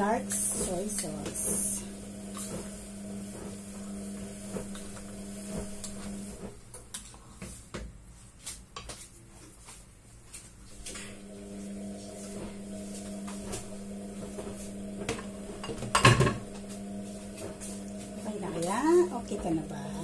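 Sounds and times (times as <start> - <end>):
steady low hum: 0.0 - 6.5.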